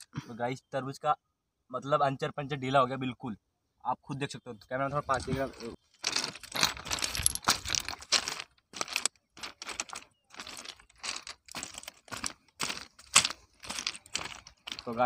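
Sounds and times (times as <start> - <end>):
footsteps crunching on gravel: 5.2 - 15.0.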